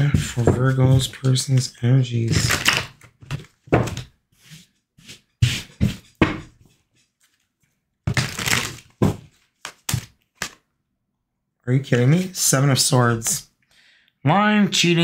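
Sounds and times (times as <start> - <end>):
cards shuffling: 8.1 - 10.6
cards snapping: 9.6 - 10.6.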